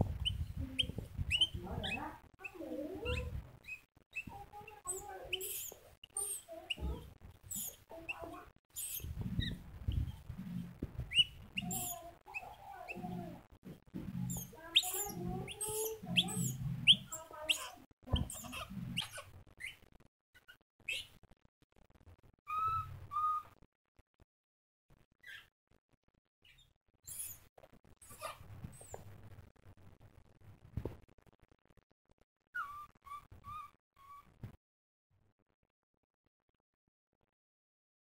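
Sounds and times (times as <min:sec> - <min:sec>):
baby monkey squeaking: 0:00.2 - 0:13.5, 0:14.1 - 0:19.8, 0:20.4 - 0:21.1, 0:22.5 - 0:23.6, 0:26.5 - 0:27.4, 0:28.0 - 0:29.0, 0:32.6 - 0:34.4.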